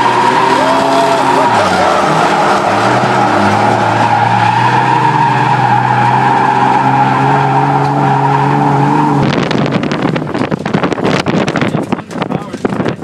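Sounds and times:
tyres squealing: 0.0s - 9.2s
car engine at steady note: 0.0s - 13.0s
wind buffeting microphone: 8.7s - 13.0s.

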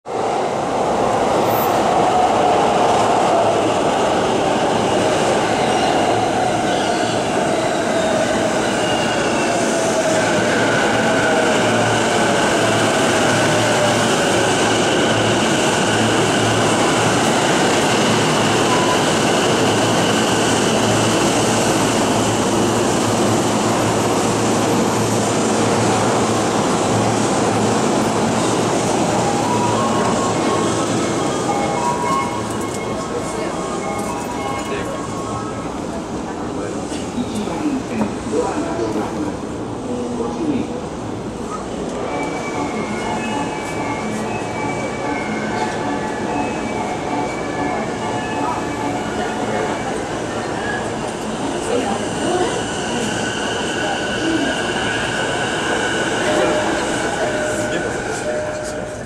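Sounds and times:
train rolling noise: 0.1s - 59.0s
station noise: 41.8s - 59.0s.

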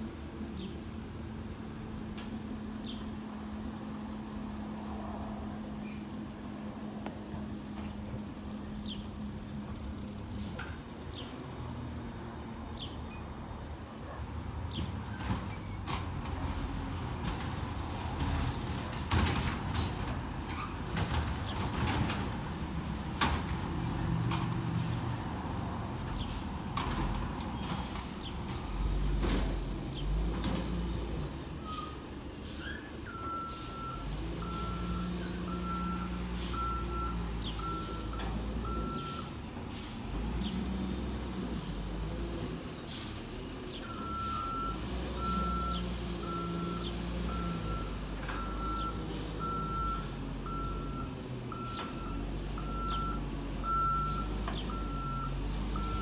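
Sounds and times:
garbage truck diesel engine: 0.0s - 56.0s
reversing alarm beeps: 33.0s - 39.3s, 43.9s - 56.0s.

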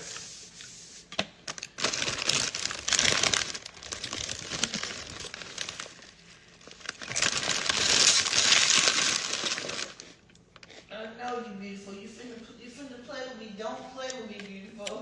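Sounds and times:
plastic bag crinkling: 1.5s - 10.8s.

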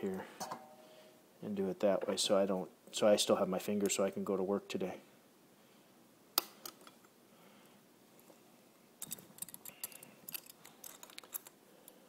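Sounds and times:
tools clicking on metal fitting: 9.0s - 11.5s.

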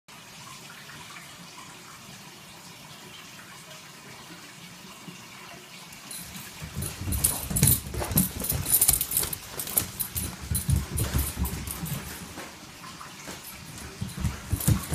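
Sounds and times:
claws clicking on floor: 6.1s - 12.6s, 13.3s - 14.9s
dog scrambling on hardwood floor: 6.1s - 14.9s.

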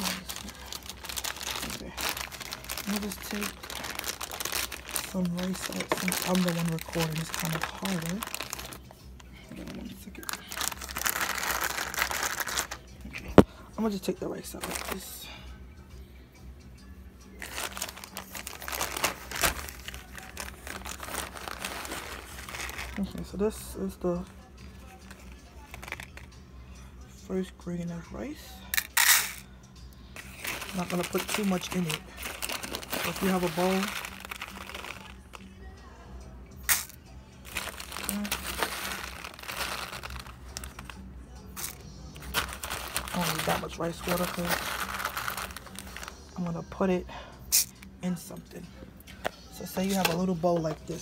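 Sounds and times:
plastic bag crinkling: 0.0s - 8.9s, 9.5s - 12.8s, 14.5s - 15.0s, 17.4s - 23.2s, 30.2s - 35.4s, 36.7s - 41.0s, 41.6s - 46.4s.

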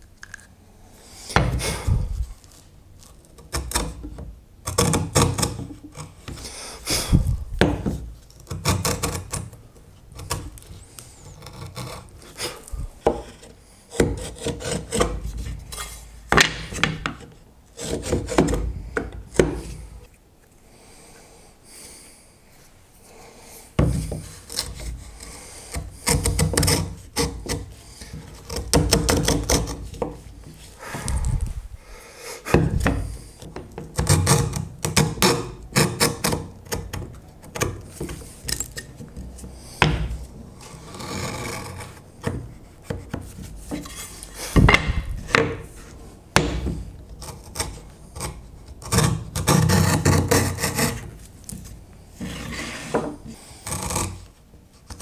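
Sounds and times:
hand tool rasping wood: 4.7s - 15.9s, 16.5s - 19.9s, 23.8s - 31.4s, 32.5s - 51.2s, 52.2s - 54.3s.

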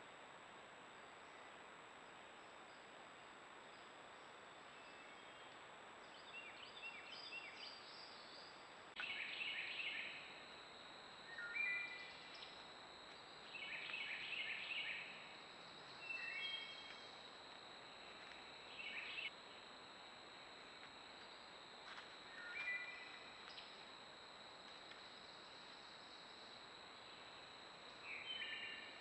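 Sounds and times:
songbirds singing: 4.7s - 10.3s, 11.3s - 15.2s, 15.8s - 17.1s, 18.7s - 19.4s, 28.0s - 29.0s.

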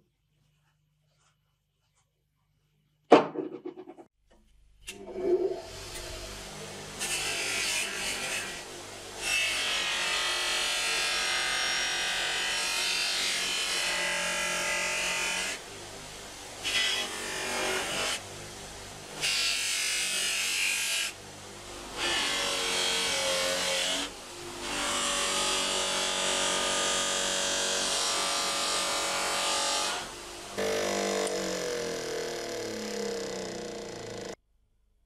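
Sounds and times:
bench grinder motor hum: 21.8s - 34.4s.

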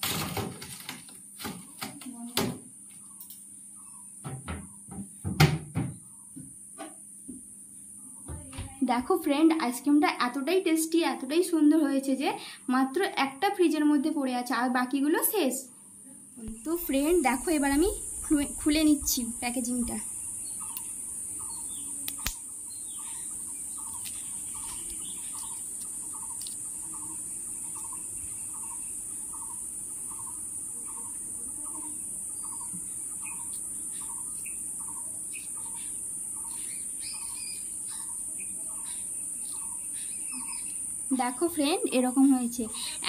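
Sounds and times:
high-pitched insect drone: 16.4s - 43.0s.

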